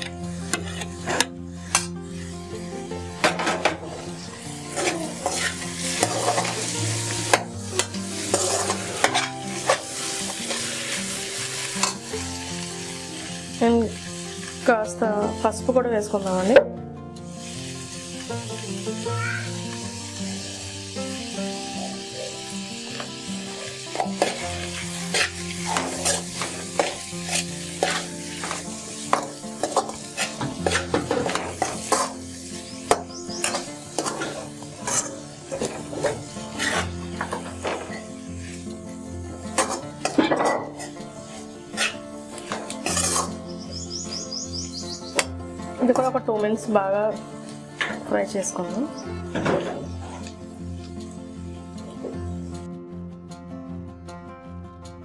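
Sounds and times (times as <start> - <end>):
oil sizzling: 0.0 - 16.6, 17.2 - 52.7
steel ladle scraping metal pan: 0.4 - 2.3, 4.7 - 12.0, 23.9 - 38.6, 39.6 - 43.5.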